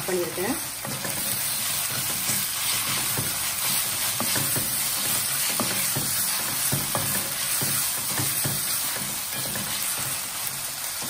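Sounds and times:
vegetables sizzling in hot oil: 0.0 - 11.0
spatula scraping and tapping pan: 0.8 - 11.0.

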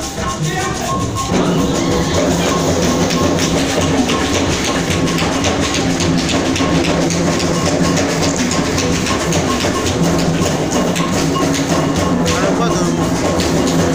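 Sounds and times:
dance music with drums: 0.0 - 13.9.

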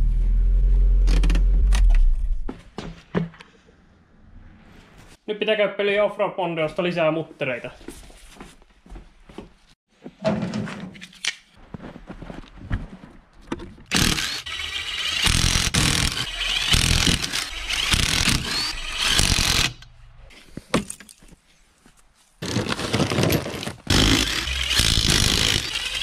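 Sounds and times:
impact wrench rattling: 13.9 - 19.9, 23.8 - 26.0.

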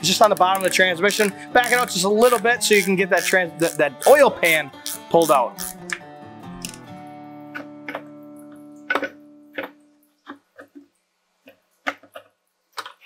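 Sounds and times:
guitar music: 0.0 - 10.1.

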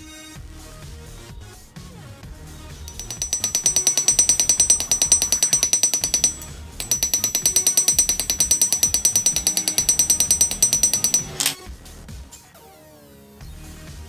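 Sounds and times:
light hammer taps on steel: 2.9 - 11.6.

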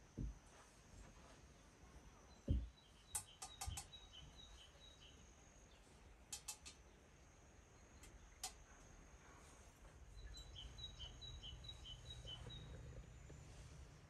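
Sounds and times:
faint bird chirps: 1.2 - 14.0
dull knock on wooden table: 2.4 - 2.7.

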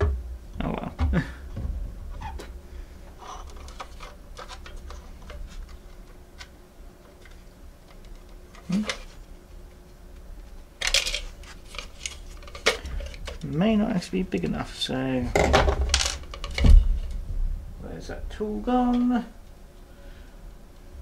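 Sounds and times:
plastic parts clicking: 10.8 - 13.6.

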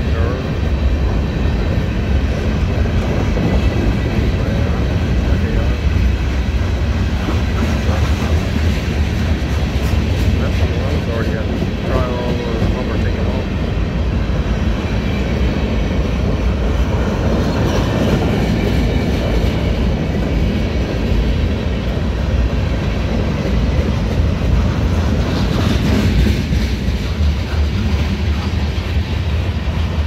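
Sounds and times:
freight train wheels rumbling: 0.0 - 30.0.

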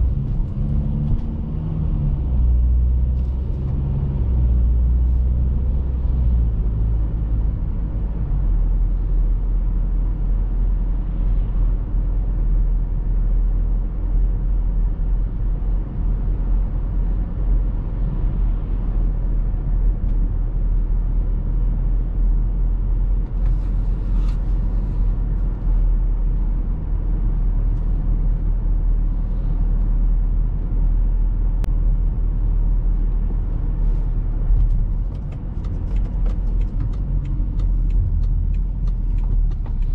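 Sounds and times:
diesel engine and tyre noise: 0.0 - 39.9.

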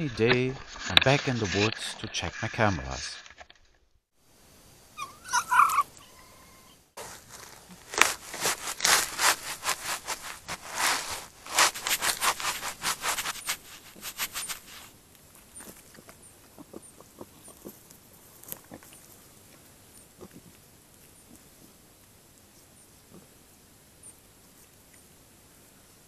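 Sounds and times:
rustling and scraping: 0.0 - 3.8, 7.0 - 16.2.

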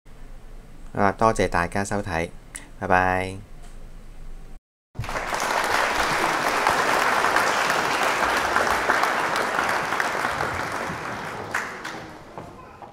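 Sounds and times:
crowd applauding: 5.0 - 12.9.

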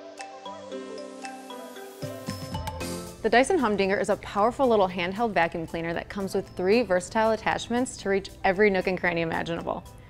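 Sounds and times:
instrumental music jingle: 0.0 - 3.2.

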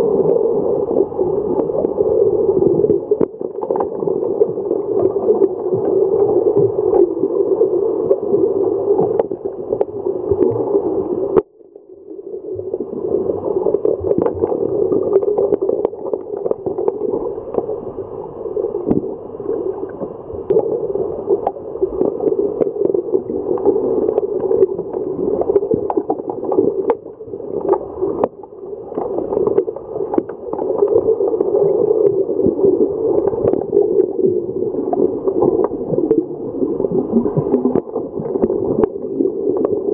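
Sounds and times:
underwater rushing: 0.0 - 39.9
underwater clicks and knocks: 18.8 - 19.1, 25.5 - 31.1.

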